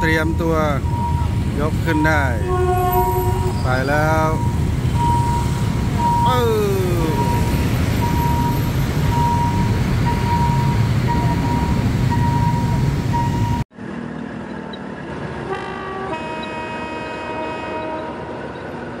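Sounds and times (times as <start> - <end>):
crossing warning signal beeping: 0.0 - 13.7, 16.1 - 16.8
motorbike and car traffic: 0.0 - 19.0.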